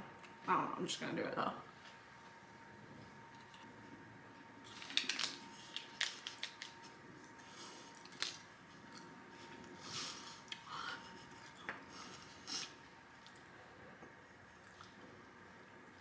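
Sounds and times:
paper packet crinkling: 0:04.6 - 0:07.0, 0:08.0 - 0:09.1.

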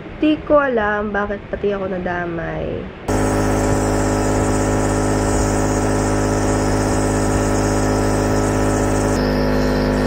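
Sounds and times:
compressor motor humming: 0:03.1 - 0:10.0.

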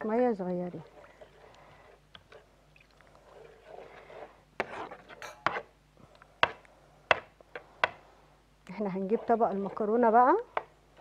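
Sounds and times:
utensil scraping a frying pan: 0:00.8 - 0:02.5, 0:03.2 - 0:05.7, 0:08.9 - 0:11.0
utensil clinking against pan: 0:05.2 - 0:05.5.

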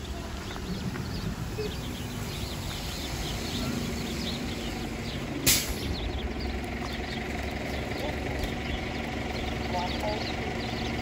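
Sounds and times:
low engine rumble: 0:00.0 - 0:11.0
sparrows chirping: 0:00.0 - 0:11.0
bus air brakes hissing: 0:02.9 - 0:06.0.

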